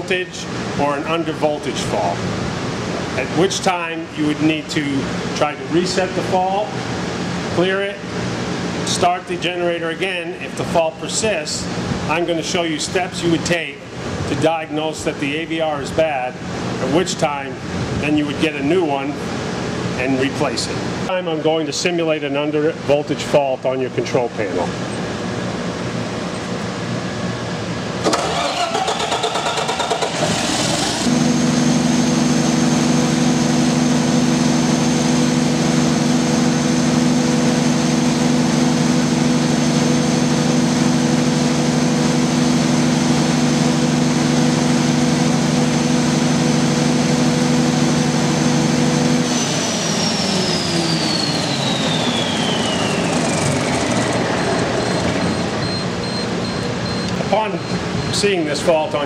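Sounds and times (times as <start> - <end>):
diesel generator running: 0.0 - 59.0
generator starter cranking: 28.0 - 31.1, 51.5 - 56.2
high whine: 30.6 - 59.0.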